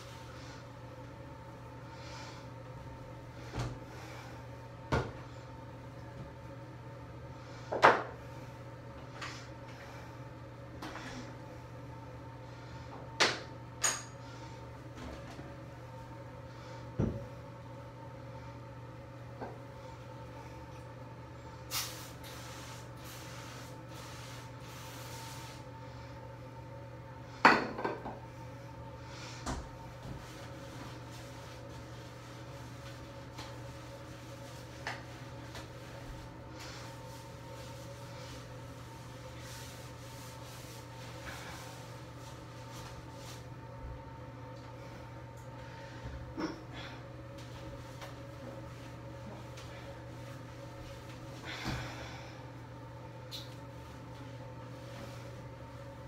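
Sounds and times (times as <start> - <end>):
steady low hum: 0.0 - 56.0
scrubbing a bathtub: 21.7 - 26.0, 29.8 - 44.0, 47.4 - 52.2, 53.1 - 56.0.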